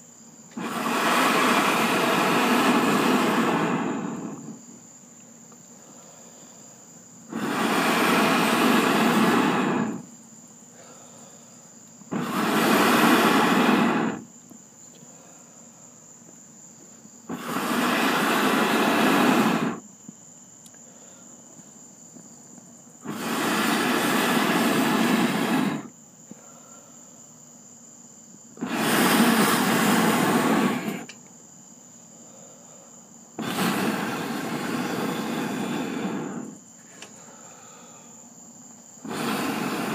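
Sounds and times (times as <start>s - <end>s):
person blowing hard breaths: 0.6s - 4.7s, 5.7s - 10.1s, 10.7s - 14.3s, 17.3s - 19.8s, 23.0s - 27.1s, 28.6s - 31.1s, 32.1s - 38.4s, 39.0s - 39.9s.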